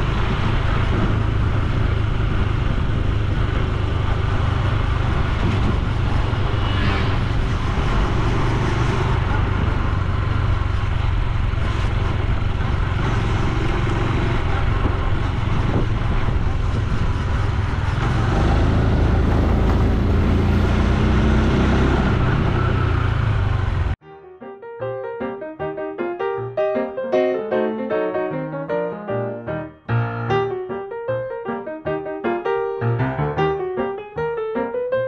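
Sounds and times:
wind noise on microphone: 0:00.0 - 0:23.4
motorcycle engine running: 0:00.0 - 0:24.0.

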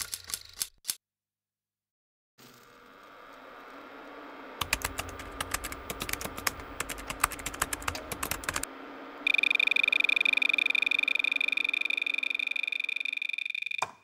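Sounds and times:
typing on computer keyboard: 0:00.0 - 0:01.0, 0:04.6 - 0:08.6
high electronic tone fluttering: 0:04.6 - 0:13.8.

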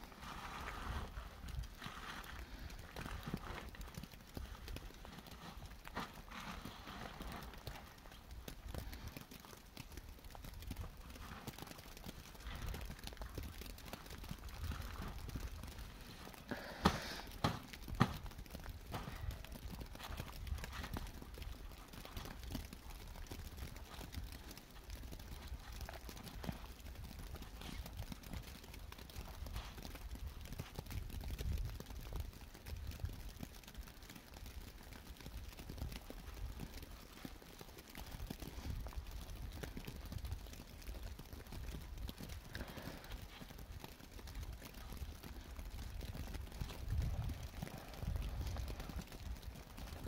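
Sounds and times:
wind rumbling on microphone: 0:00.0 - 0:50.0
small knocks and ticks: 0:01.3 - 0:50.0.

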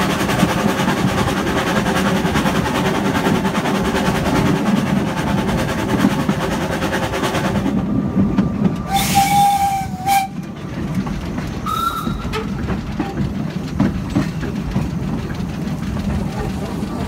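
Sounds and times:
steam locomotive rumble: 0:00.0 - 0:17.0
train whistle: 0:08.9 - 0:10.4, 0:11.6 - 0:12.5
wheels and couplings clattering: 0:09.9 - 0:17.0.

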